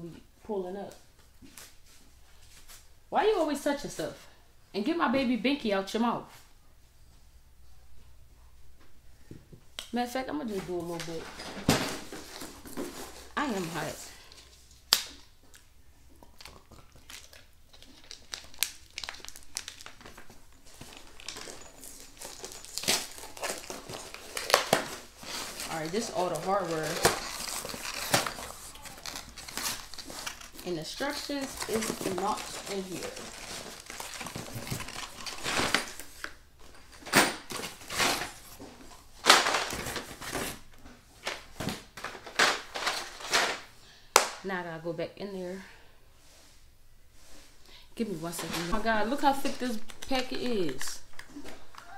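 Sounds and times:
plastic bags crinkling: 10.9 - 43.7.

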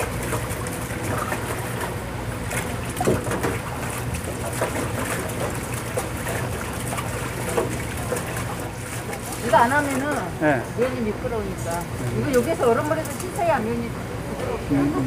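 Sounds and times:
water splashing: 0.0 - 13.6
hose water running into sink: 2.6 - 10.6.

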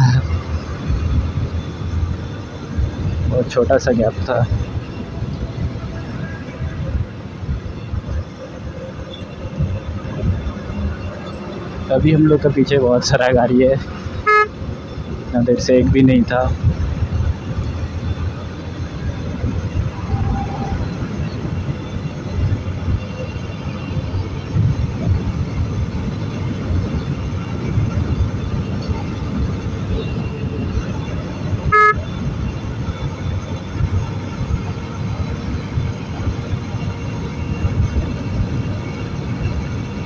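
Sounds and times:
road noise: 0.0 - 40.0
wind buffeting motorcycle: 0.0 - 40.0
short horn beep: 14.3 - 14.5, 20.0 - 20.8, 31.7 - 32.0.

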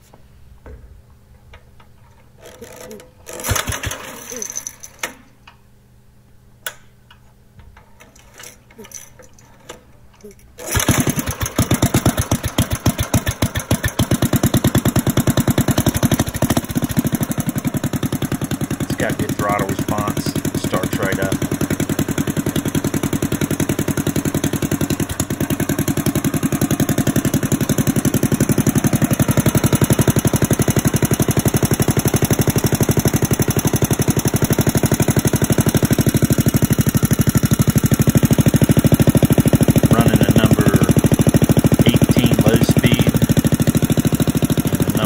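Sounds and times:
engine idling: 10.7 - 45.0.

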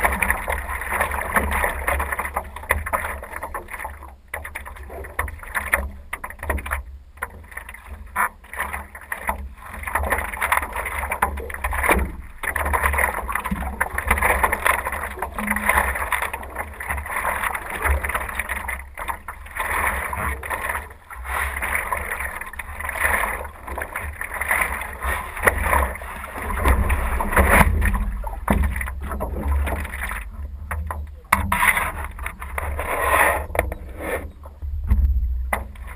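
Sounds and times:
paddle strokes splashing: 0.0 - 35.9
water sloshing against hull: 0.0 - 35.9
wind rumble on microphone: 25.1 - 35.9.

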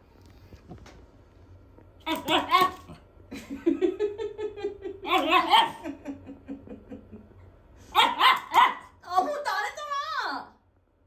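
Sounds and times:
small dog barking: 2.0 - 3.0, 5.1 - 5.9, 7.9 - 9.0
woman laughing: 3.3 - 7.4.

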